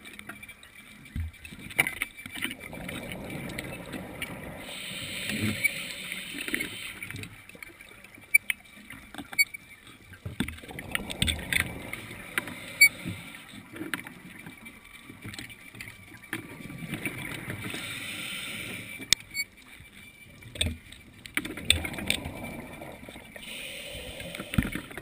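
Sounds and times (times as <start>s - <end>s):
exhaled bubbles rumbling: 2.5s - 7.3s, 10.5s - 13.3s, 21.6s - 23.5s
regulator inhale hiss: 3.1s - 7.4s, 10.8s - 13.7s, 17.6s - 19.1s, 23.4s - 25.0s.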